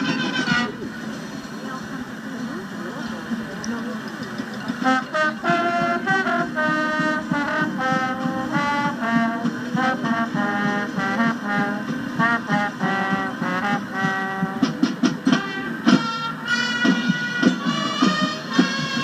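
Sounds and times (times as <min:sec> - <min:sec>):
trumpets and trombones: 0:00.0 - 0:02.2, 0:04.7 - 0:19.0
school band through speakers: 0:00.0 - 0:19.0.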